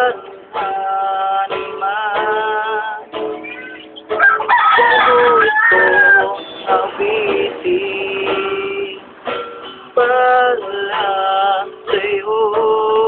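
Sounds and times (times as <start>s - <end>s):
man singing: 0.0s - 3.3s, 4.7s - 9.1s, 9.9s - 13.0s
acoustic guitar strumming: 0.0s - 13.0s
rooster crowing: 3.6s - 6.6s.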